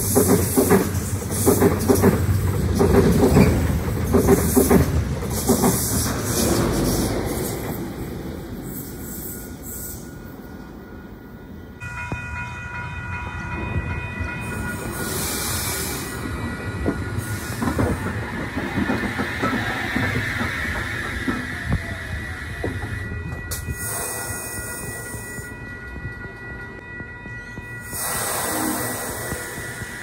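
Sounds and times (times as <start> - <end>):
wheels clicking over rail joints: 0.0 - 7.0
train passing: 0.0 - 30.0.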